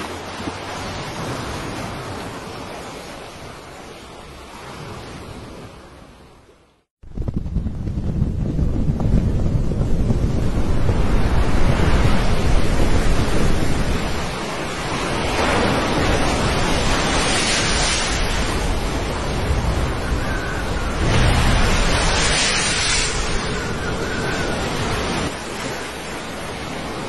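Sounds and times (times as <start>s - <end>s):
crashing sea waves: 0.0s - 6.7s, 7.8s - 27.0s
wind buffeting the microphone: 7.0s - 25.4s
waves breaking against ship: 9.6s - 27.0s.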